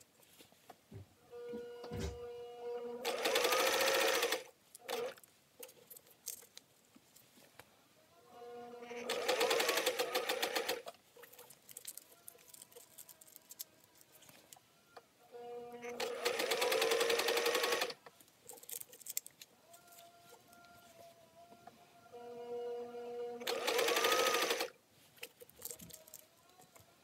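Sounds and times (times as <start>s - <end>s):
sewing machine stitching: 3.0s - 5.2s, 8.9s - 10.9s, 15.9s - 18.0s, 23.4s - 24.7s.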